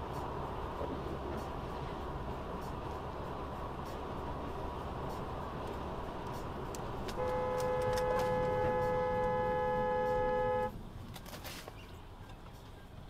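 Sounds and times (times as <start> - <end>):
road noise from moving car: 0.0 - 13.0
car horn blast: 7.1 - 10.8.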